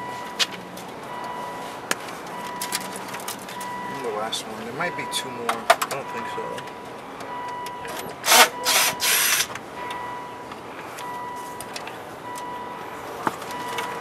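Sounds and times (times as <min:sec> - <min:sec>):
cordless screwdriver whirring: 0:08.2 - 0:09.5.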